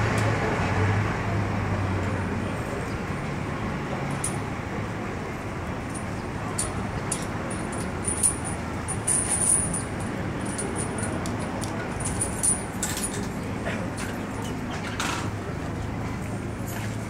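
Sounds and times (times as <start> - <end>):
traffic rumble: 0.0 - 17.0
light clinks: 5.9 - 15.3.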